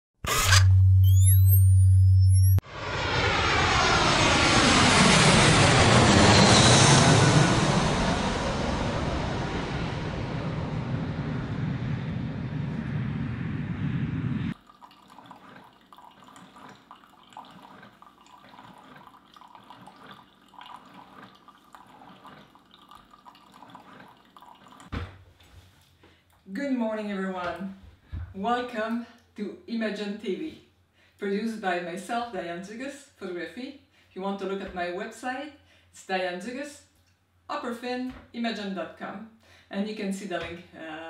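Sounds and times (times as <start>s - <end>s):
jet airliner engine roar: 2.6s - 14.6s.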